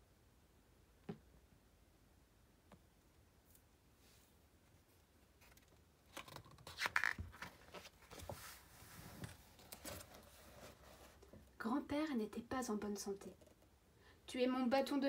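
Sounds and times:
book page turning: 0:05.4 - 0:08.6.

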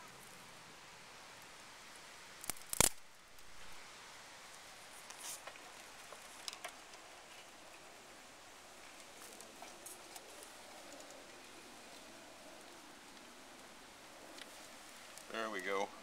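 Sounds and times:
brief rustle: 0:05.0 - 0:07.5.

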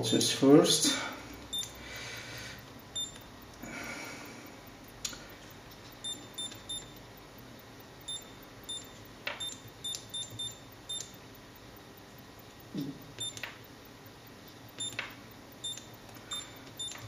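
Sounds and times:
high electronic key beeps: 0:01.5 - 0:01.8, 0:02.9 - 0:03.3, 0:06.0 - 0:07.0, 0:08.0 - 0:11.2, 0:13.0 - 0:13.5, 0:14.8 - 0:15.0, 0:15.6 - 0:17.0.

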